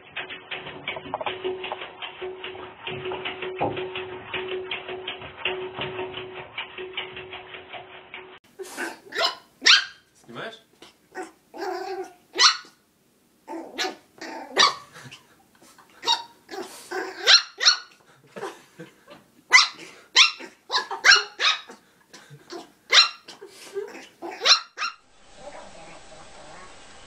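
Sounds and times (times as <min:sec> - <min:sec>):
puppy yapping: 0:09.1 - 0:10.1, 0:11.2 - 0:12.8, 0:13.5 - 0:15.2, 0:16.0 - 0:18.0, 0:19.5 - 0:21.8, 0:22.5 - 0:25.0.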